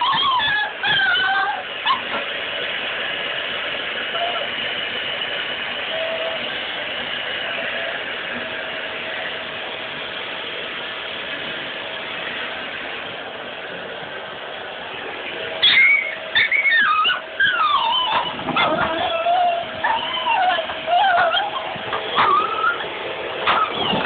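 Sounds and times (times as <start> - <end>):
dog whining and yelping: 0.0 - 2.2, 15.6 - 24.0
vacuum cleaner running: 0.0 - 24.0.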